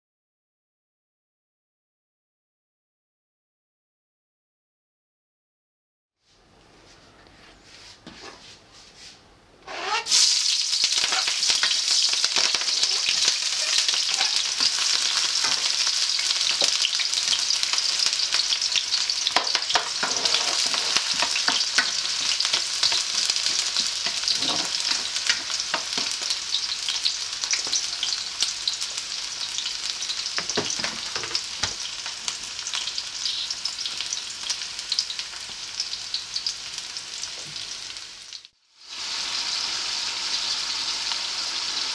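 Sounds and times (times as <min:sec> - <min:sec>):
onion sizzling in hot oil: 0:09.7 - 0:41.9
spoon scraping pan: 0:12.4 - 0:16.8, 0:19.7 - 0:26.2.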